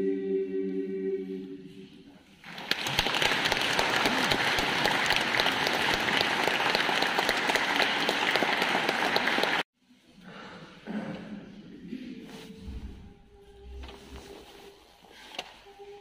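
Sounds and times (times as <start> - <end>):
audience applauding: 2.4 - 9.7.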